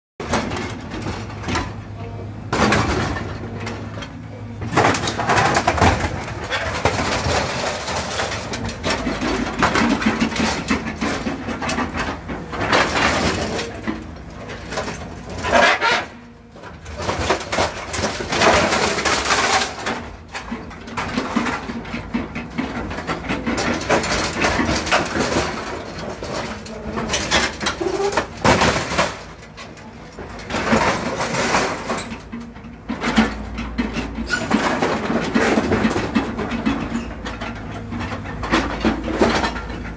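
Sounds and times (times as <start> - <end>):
excavator engine running: 0.2 - 39.9.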